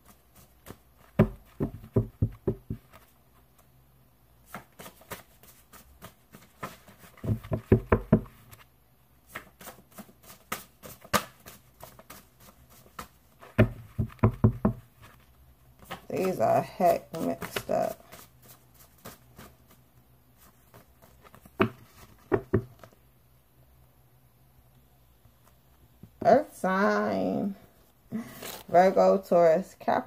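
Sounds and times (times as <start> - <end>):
cards being shuffled: 4.4 - 7.5, 9.3 - 13.2, 15.0 - 19.8.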